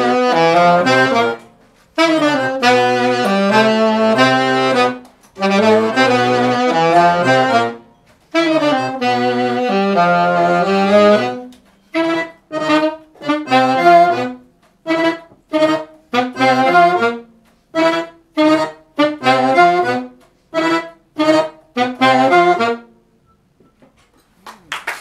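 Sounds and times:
accordion: 0.0 - 23.4
saxophone: 0.0 - 24.1
applause: 24.2 - 25.0.

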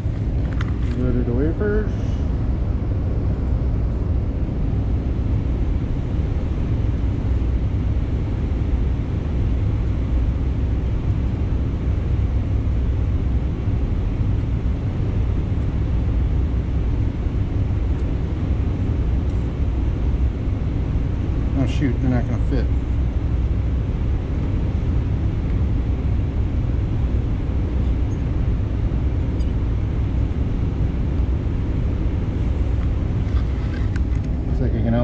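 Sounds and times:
low machine rumble: 0.0 - 35.0
ventilation hiss: 0.0 - 35.0.

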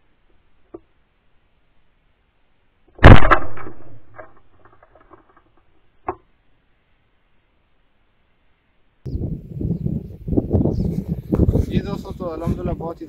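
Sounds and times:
shotgun shot with echo: 3.0 - 4.3.

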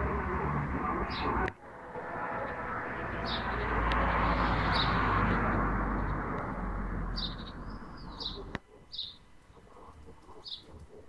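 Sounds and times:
propeller aircraft droning: 0.0 - 8.6
bird chirping: 1.0 - 1.5, 2.4 - 5.3, 7.0 - 11.0.

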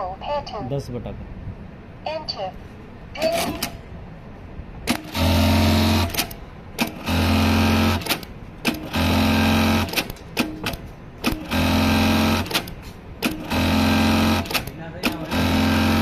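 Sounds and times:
sewing machine clicks: 4.9 - 16.0
sewing machine stitching: 4.9 - 16.0.

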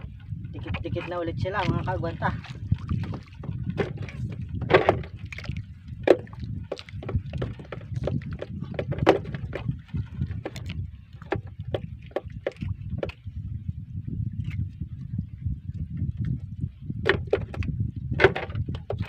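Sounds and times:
fish flapping in boat: 0.5 - 13.2
knocks on wooden boat hull: 6.0 - 9.7, 17.0 - 17.6.

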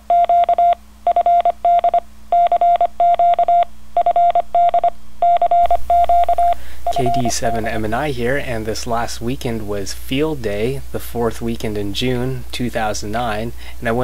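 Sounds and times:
morse code beeps: 0.0 - 7.7.

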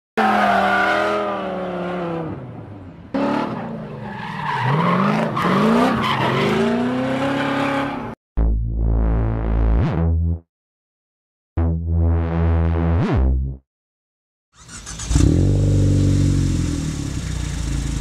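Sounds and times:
racing car engines revving: 0.2 - 8.2
low electronic music tone: 8.4 - 10.4.

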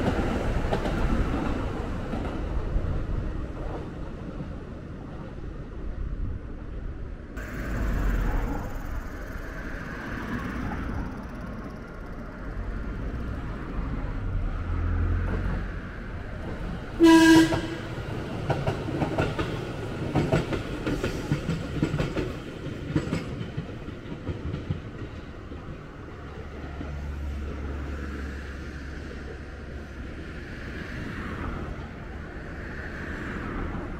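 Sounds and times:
train wheels clacking on rails: 0.0 - 3.9, 15.2 - 27.7
train horn blast: 17.0 - 18.0.

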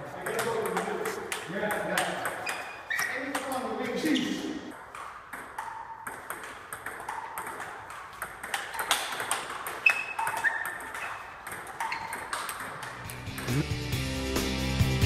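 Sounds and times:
table tennis ball clicking: 0.2 - 3.7, 4.7 - 13.6.

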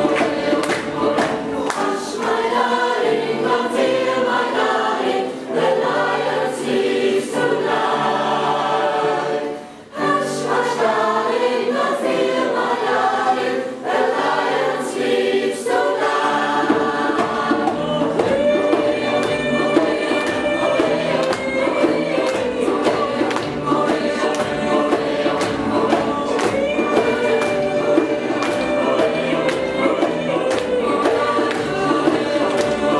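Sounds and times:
mixed choir singing: 0.0 - 32.9
steady rhythmic beat: 15.6 - 32.9.

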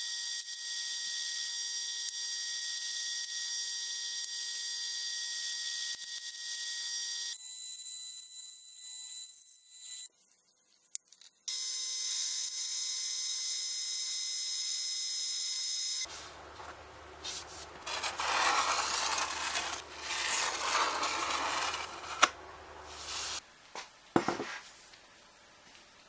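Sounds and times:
low hum: 16.1 - 23.4
drill press running: 16.3 - 23.4
rough rubbing rasping: 16.6 - 23.4.

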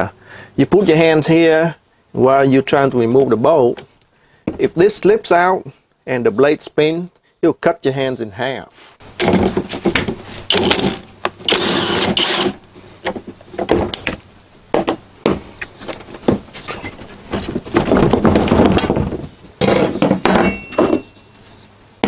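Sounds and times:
impact driver bursts: 10.5 - 12.6.

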